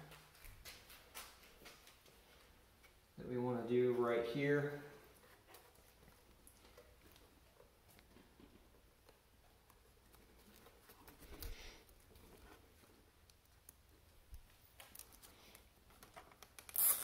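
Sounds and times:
soft rustling: 0:03.9 - 0:16.4
small clicks of zip tie: 0:16.2 - 0:17.0.

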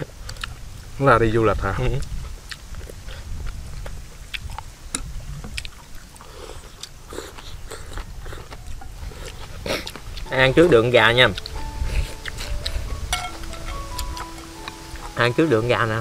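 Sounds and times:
chewing and slurping noodles: 0:02.0 - 0:10.4, 0:11.3 - 0:15.2
chopsticks clicking on bowls: 0:11.2 - 0:15.2.

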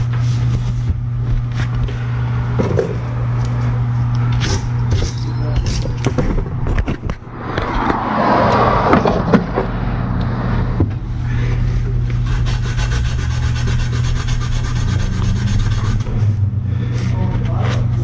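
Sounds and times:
steady low hum: 0:00.0 - 0:18.0
cloth scrubbing copper tubing: 0:12.2 - 0:16.4.

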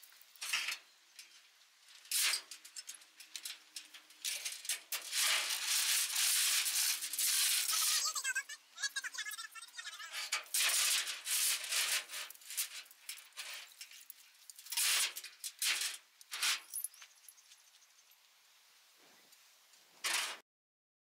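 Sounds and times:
steel chain rattling and clinking: 0:12.4 - 0:17.6.

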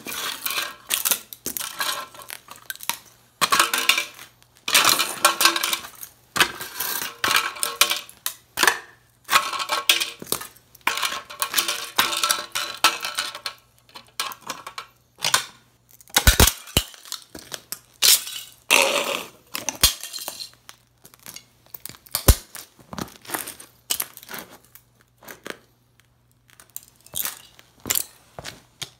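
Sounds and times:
boots crushing wood and plastic: 0:00.0 - 0:13.3, 0:14.2 - 0:25.7, 0:26.4 - 0:28.9.

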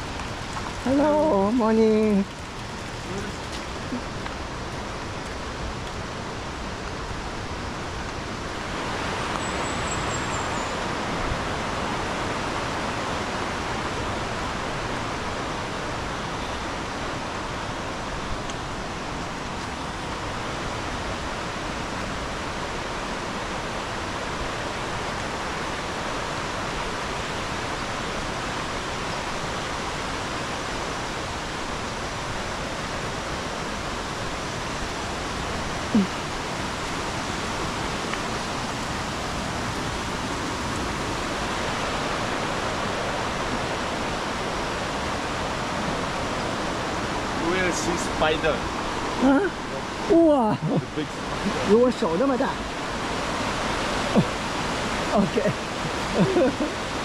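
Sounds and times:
flowing water rushing: 0:00.0 - 0:57.0.

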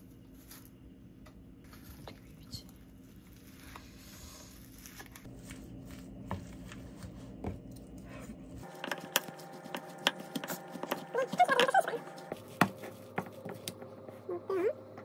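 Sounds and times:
wooden spoon scraping a bowl: 0:08.2 - 0:14.3.

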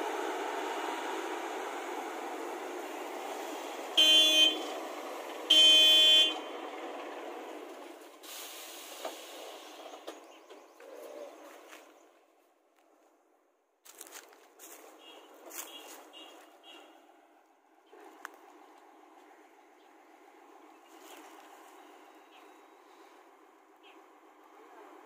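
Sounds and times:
vehicle horn honking: 0:04.0 - 0:04.7, 0:05.5 - 0:06.5, 0:14.9 - 0:17.1.

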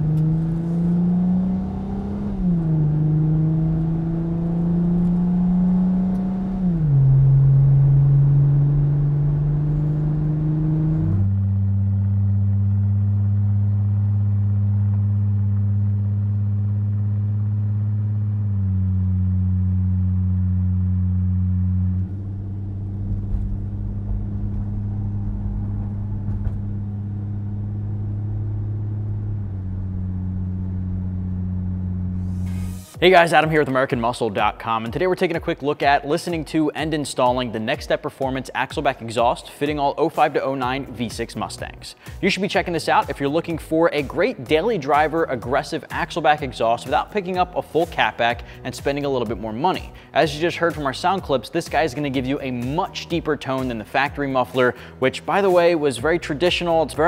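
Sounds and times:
car exhaust droning: 0:00.0 - 0:34.8.

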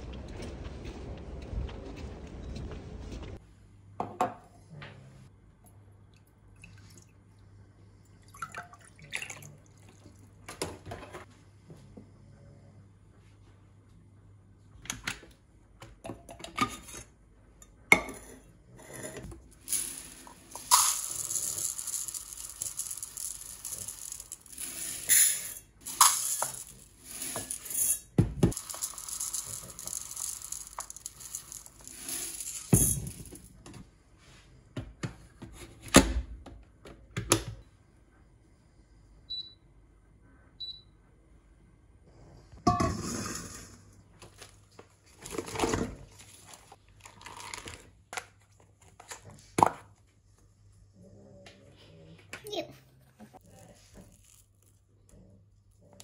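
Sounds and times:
rice cooker beeps: 0:39.3 - 0:39.6, 0:40.6 - 0:40.9.

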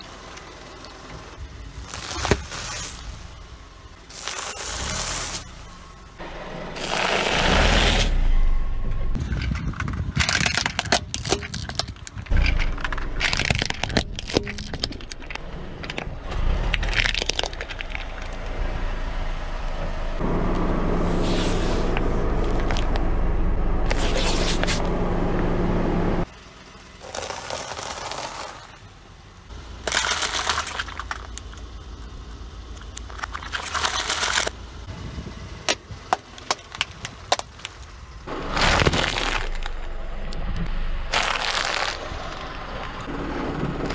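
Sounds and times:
gritty scraping on asphalt: 0:00.8 - 0:08.4, 0:20.9 - 0:23.1, 0:23.7 - 0:25.0, 0:26.8 - 0:43.9
plastic cracking under car tyre: 0:09.8 - 0:16.1, 0:16.7 - 0:18.5, 0:27.0 - 0:28.8, 0:29.8 - 0:31.8, 0:32.7 - 0:34.6, 0:35.7 - 0:40.5, 0:41.1 - 0:43.0
car engine running: 0:12.1 - 0:43.9.

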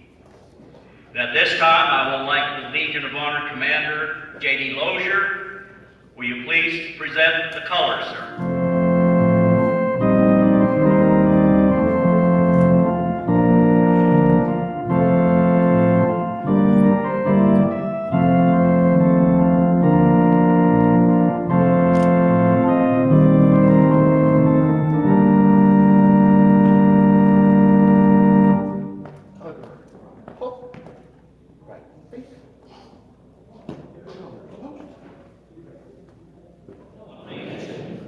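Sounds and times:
organ playing slow chords: 0:01.2 - 0:29.9.

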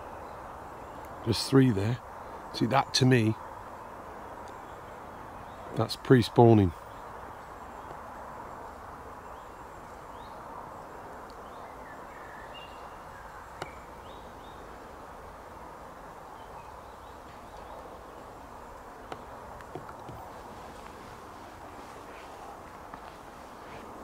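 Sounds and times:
steady low hiss: 0:00.0 - 0:24.0
faint bird chirps: 0:02.2 - 0:14.8.

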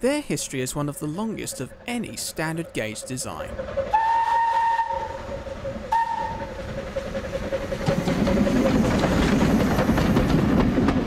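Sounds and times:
train passing with clattering rumble: 0:00.4 - 0:11.0
steam whistle toot: 0:03.9 - 0:05.3, 0:05.9 - 0:06.6.

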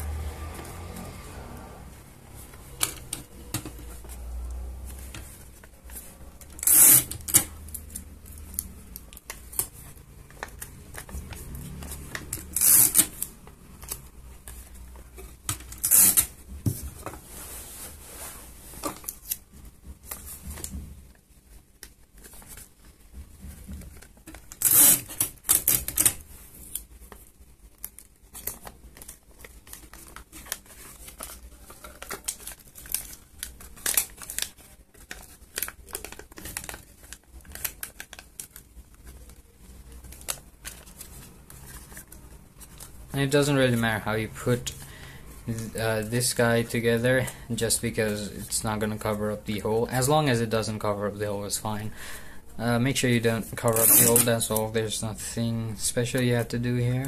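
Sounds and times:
paper and card handled: 0:02.2 - 0:51.0, 0:52.7 - 0:55.0
sticky tape ripping: 0:06.5 - 0:09.7, 0:10.4 - 0:14.1, 0:15.5 - 0:16.4, 0:24.3 - 0:26.9, 0:53.6 - 0:54.6.

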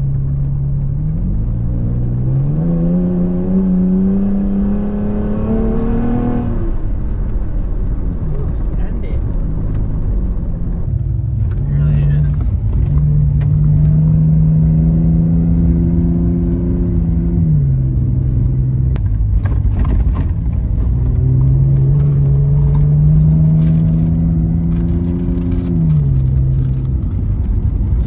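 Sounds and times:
truck engine: 0:00.0 - 0:28.0
tyres rumbling on dirt: 0:06.9 - 0:28.0
rattles and knocks from bumps: 0:19.0 - 0:22.9.

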